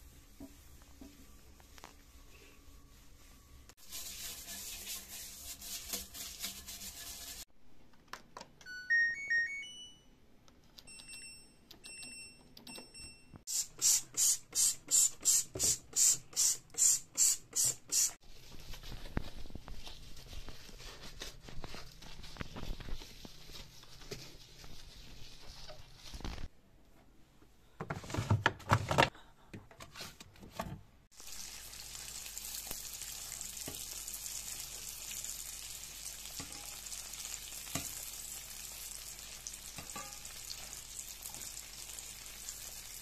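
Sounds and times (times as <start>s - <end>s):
toilet brush scrubbing: 3.1s - 7.5s, 13.5s - 18.6s
electronic beeps: 8.7s - 10.1s
spray bottle squirting: 13.5s - 18.2s.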